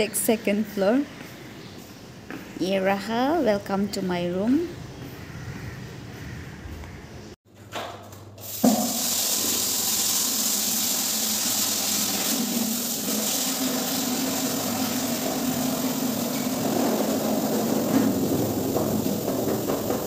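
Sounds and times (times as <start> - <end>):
water running into plastic bucket: 8.4 - 20.0.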